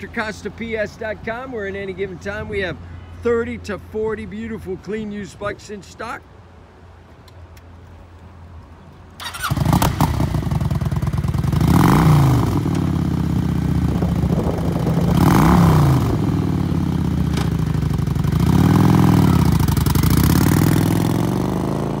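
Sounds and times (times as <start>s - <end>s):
motorcycle engine revving: 9.2s - 22.0s
motorcycle engine starting and idling: 9.2s - 22.0s.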